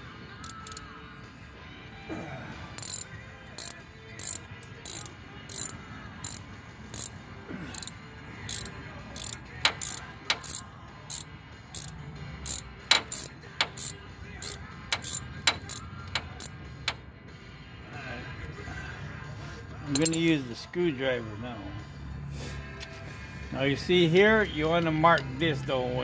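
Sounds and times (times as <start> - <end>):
socket ratchet clicking: 0.4 - 0.9, 2.8 - 7.1, 7.7 - 17.0, 20.0 - 20.3.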